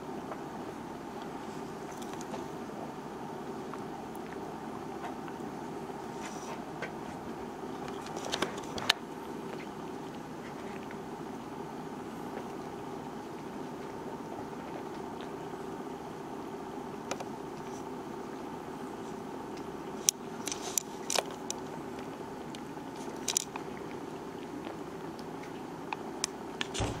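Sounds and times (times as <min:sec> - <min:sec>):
low hum: 0:26.5 - 0:27.0.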